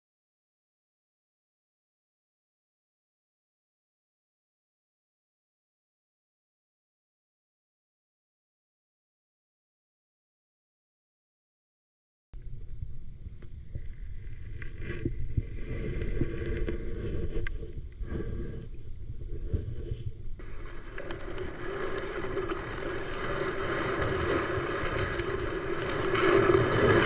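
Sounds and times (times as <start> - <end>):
dense hiss: 12.4 - 27.0
muffled underwater noise: 12.4 - 27.0
knocks and scrapes: 13.8 - 27.0.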